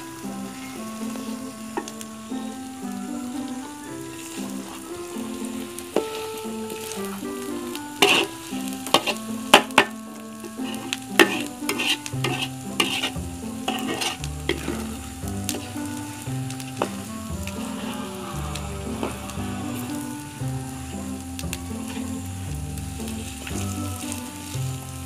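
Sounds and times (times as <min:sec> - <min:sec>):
food sizzling: 0:00.0 - 0:25.0
metal spatula scraping a wok: 0:08.0 - 0:16.0.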